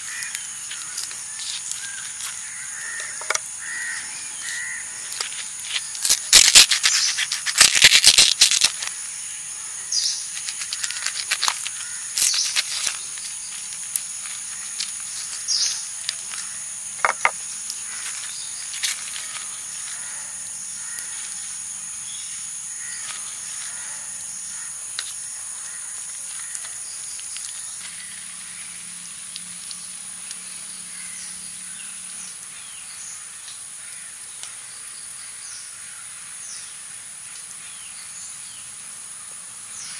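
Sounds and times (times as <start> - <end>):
leaf wrapping rustling: 0.0 - 21.4
insect drone: 0.0 - 39.9.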